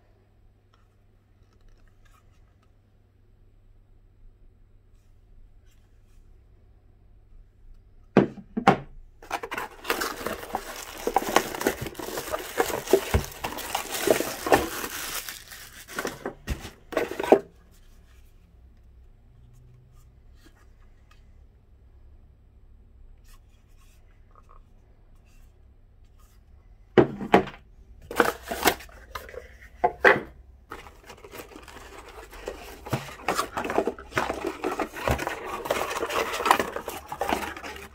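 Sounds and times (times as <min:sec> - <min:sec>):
packaging rustling: 0:09.2 - 0:17.4, 0:30.7 - 0:37.9.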